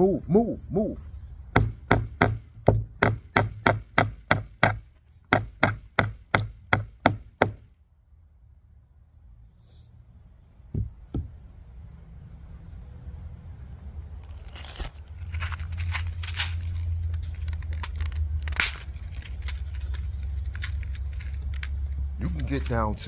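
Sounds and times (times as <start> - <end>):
dull hammer knocks: 1.6 - 7.6, 10.7 - 11.4
scraping handling noise: 14.0 - 23.0.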